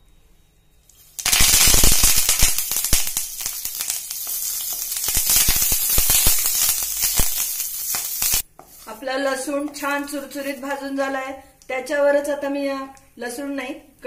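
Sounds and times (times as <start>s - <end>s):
leaves sizzling and popping in oil: 0.9s - 9.0s.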